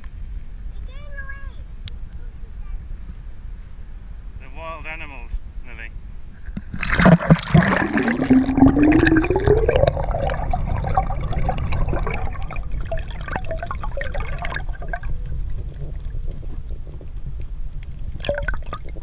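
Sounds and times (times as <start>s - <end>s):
underwater bubbles and churning: 6.6s - 19.0s.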